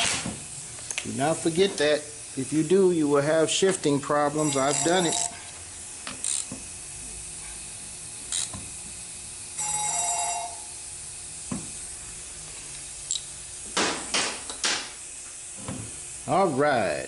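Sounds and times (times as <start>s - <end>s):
ratchet wrench clicks: 6.0s - 6.5s, 8.3s - 8.6s.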